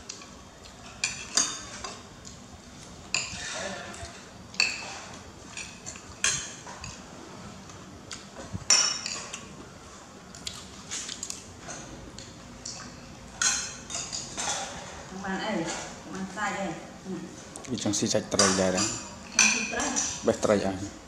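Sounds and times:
spoons clinking on ceramic bowls: 0:18.4 - 0:20.2.

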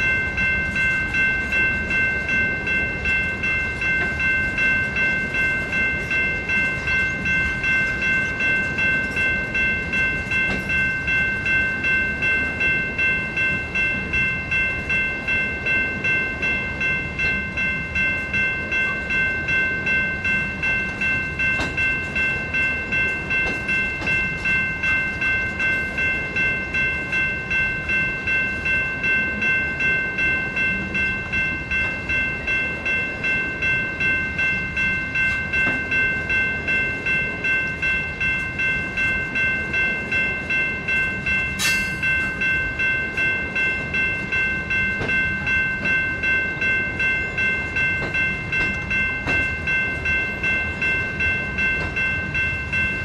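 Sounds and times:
railroad crossing bell ringing: 0:00.0 - 0:53.0
sharp metal clank: 0:41.6 - 0:42.0.

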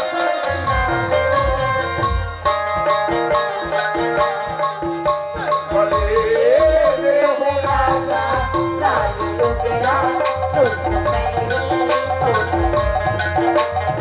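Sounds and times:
keyboard and harmonium melody: 0:00.0 - 0:14.0
tabla drumming: 0:00.0 - 0:14.0
person singing: 0:03.2 - 0:14.0.

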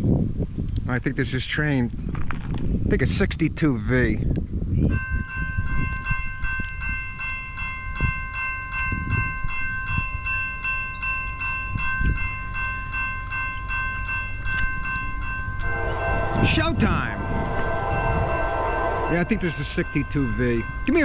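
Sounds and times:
crossing warning bell ringing: 0:04.8 - 0:21.0
locomotive horn: 0:15.6 - 0:19.8.

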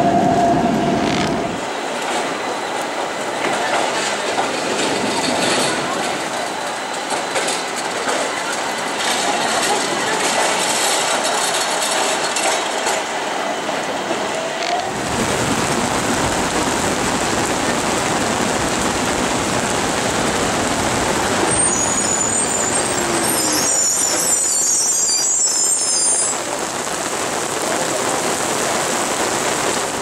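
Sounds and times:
tram wheels rumbling on track: 0:00.0 - 0:30.0
rain hissing: 0:14.8 - 0:30.0
high wheel squeal: 0:21.4 - 0:26.4.

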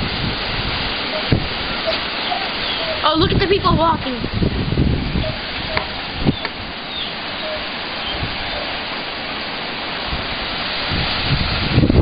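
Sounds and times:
strong wind rushing: 0:00.0 - 0:12.0.

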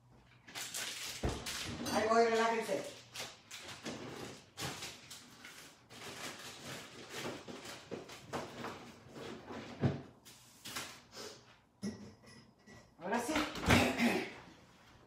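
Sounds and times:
kitchen items clicking and rustling: 0:00.4 - 0:10.0.

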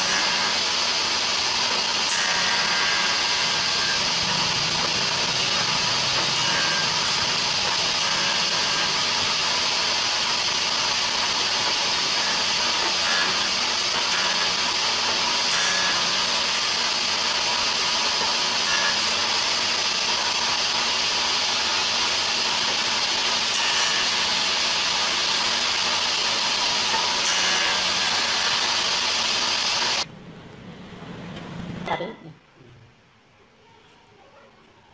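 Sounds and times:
woodworking machine planing wood: 0:00.0 - 0:30.1.

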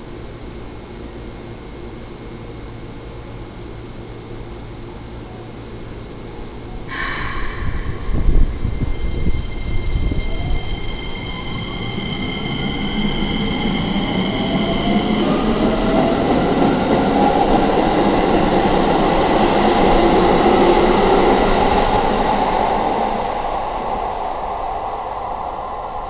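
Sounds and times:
steady high tones: 0:06.9 - 0:16.6.

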